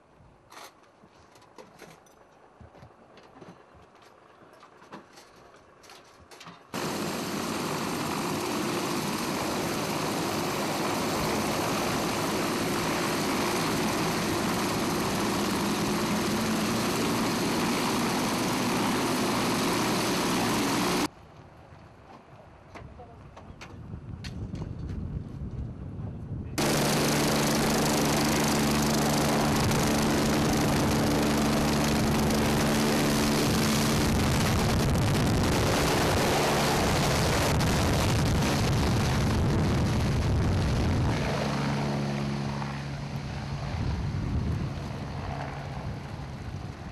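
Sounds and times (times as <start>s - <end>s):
helicopter rotor and turbine: 6.8s - 21.1s, 26.6s - 46.9s.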